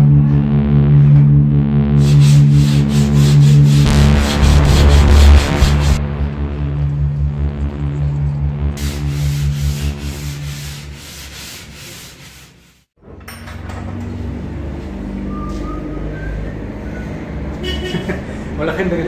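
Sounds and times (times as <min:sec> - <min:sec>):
sanding block rubbing filler: 0:02.0 - 0:03.9, 0:08.8 - 0:12.9.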